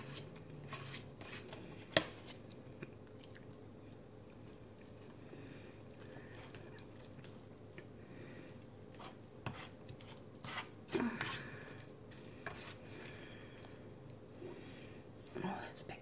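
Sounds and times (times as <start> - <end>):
fork scraping foil tray: 0.0 - 1.6, 9.0 - 11.5.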